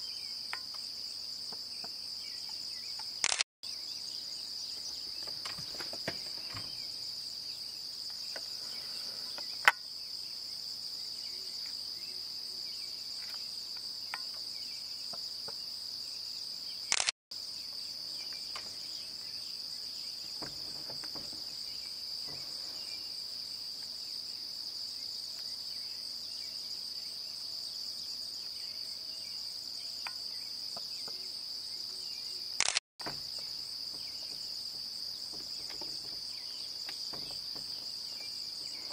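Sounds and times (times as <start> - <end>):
night insects trilling: 0.0 - 38.9
sharp click: 3.0 - 3.4, 16.9 - 17.1, 32.6 - 33.2.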